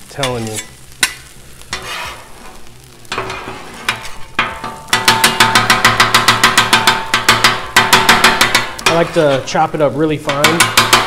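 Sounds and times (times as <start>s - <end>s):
faint sizzle: 0.0s - 11.0s
spatulas scraping griddle: 0.1s - 11.0s
metal spatulas clacking on griddle: 3.1s - 9.5s, 10.2s - 11.0s.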